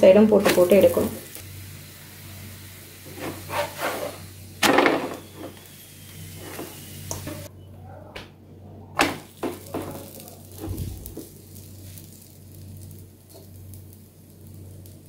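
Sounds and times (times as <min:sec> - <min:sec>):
oil sizzling: 0:00.0 - 0:07.5, 0:09.0 - 0:15.0
spatula scraping a pan: 0:03.0 - 0:04.3.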